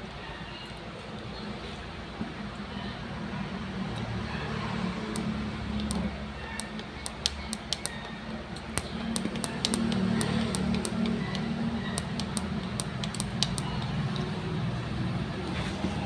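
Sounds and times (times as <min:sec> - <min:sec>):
ignition sparking clicks: 0:05.1 - 0:14.3.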